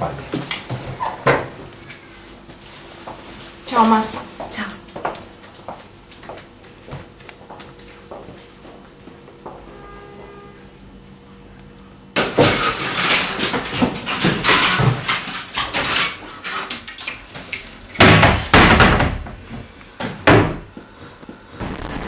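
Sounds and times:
knocking and clattering in cupboard: 18.0s - 19.4s, 20.1s - 20.7s.

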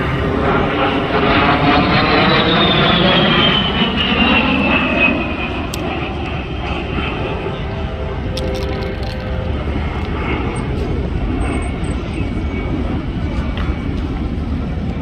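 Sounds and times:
jet aircraft rushing past: 0.0s - 15.0s.

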